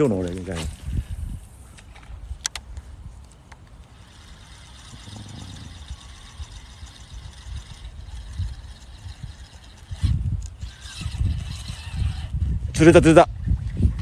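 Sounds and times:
sharp clicks: 1.8 - 4.0
low uneven rumble: 3.8 - 12.6.

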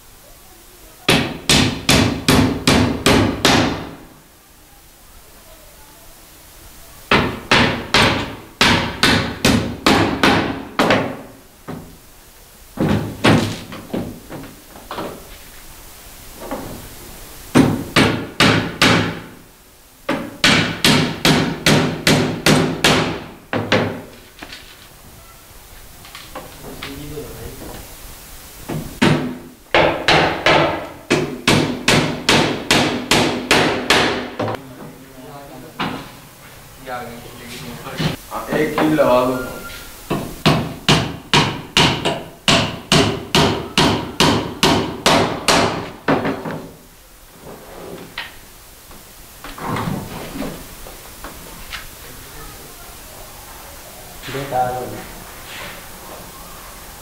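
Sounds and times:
hammer driving nails into wood: 17.6 - 19.3, 20.1 - 24.0, 28.7 - 34.5, 40.1 - 46.6.

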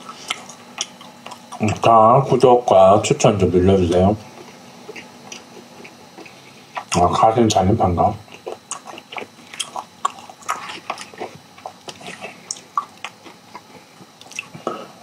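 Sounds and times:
close chewing mouth clicks: 0.2 - 1.8, 4.3 - 7.0, 8.3 - 14.8.

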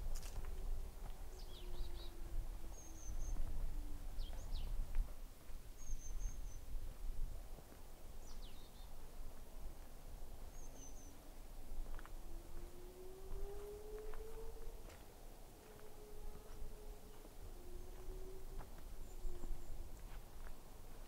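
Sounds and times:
faint low drone falling in pitch: 0.0 - 5.0, 11.9 - 20.1
small birds chirping: 1.2 - 3.5, 4.2 - 4.8, 5.8 - 6.8, 8.2 - 9.0, 10.5 - 11.3.

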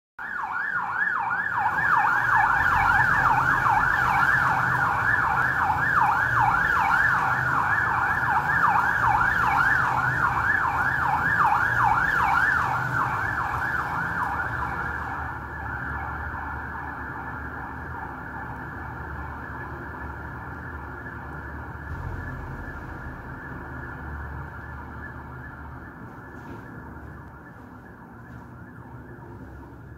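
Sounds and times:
siren warbling: 0.2 - 29.9
steady siren tone: 0.2 - 29.9
motorcycle engine rumble: 21.7 - 28.6.

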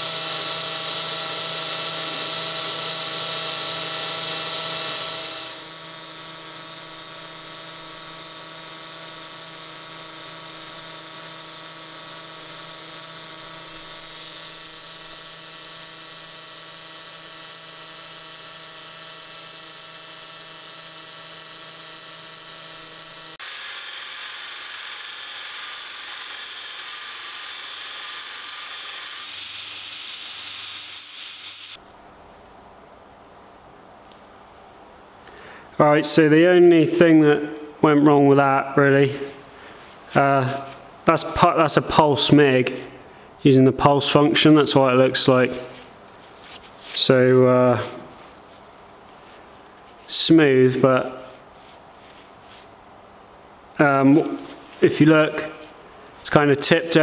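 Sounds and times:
cordless drill whirring: 0.0 - 31.8.

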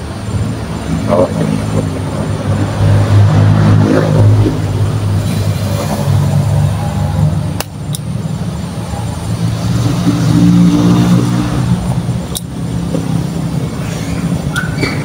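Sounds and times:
hand stapler clicks: 12.3 - 12.5.

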